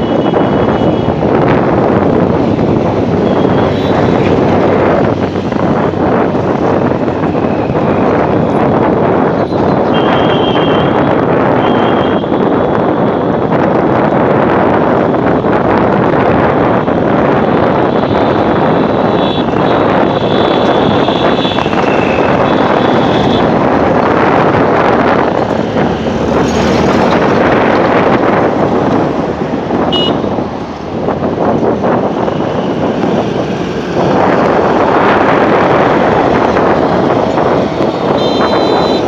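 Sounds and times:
road traffic noise: 0.0 - 39.0
wind rushing over microphone: 0.0 - 39.0
high-pitched horn beeps: 38.2 - 39.0.

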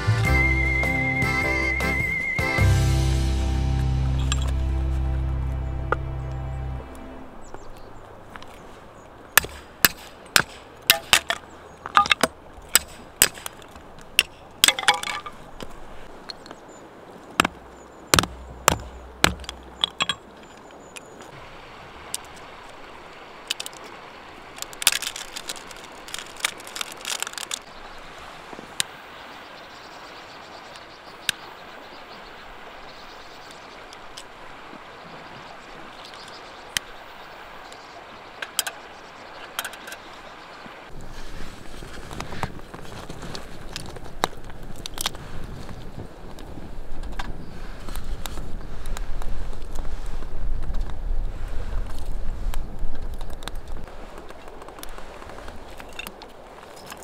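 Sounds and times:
steady outdoor hiss: 0.0 - 57.0
hard objects knocking and clinking: 14.2 - 15.4, 17.4 - 20.3.

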